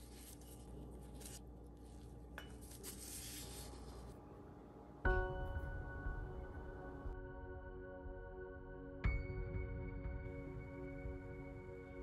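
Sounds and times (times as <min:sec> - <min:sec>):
rubbing and handling cookie dough: 0:00.0 - 0:04.3
soft bell-like music: 0:05.1 - 0:12.0.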